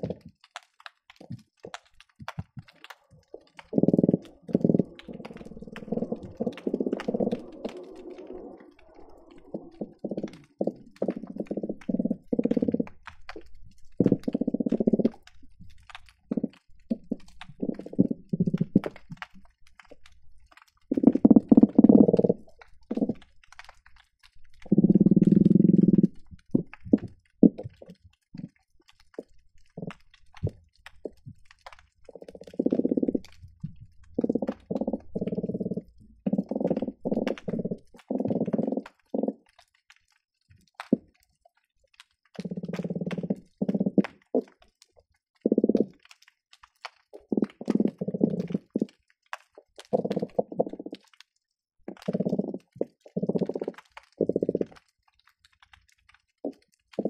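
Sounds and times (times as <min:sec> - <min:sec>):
fish croaking underwater: 0:00.0 - 0:57.0
short clicks and pops: 0:42.0 - 0:51.3, 0:51.9 - 0:57.0.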